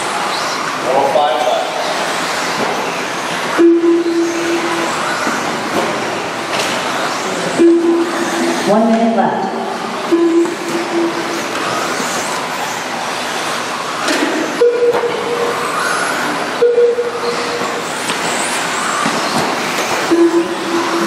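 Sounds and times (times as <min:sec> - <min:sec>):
short steady tones: 0:03.6 - 0:05.2, 0:07.5 - 0:08.9, 0:10.0 - 0:12.4, 0:14.6 - 0:17.8, 0:20.0 - 0:21.0
rc truck motor whine: 0:11.2 - 0:16.6, 0:17.3 - 0:21.0.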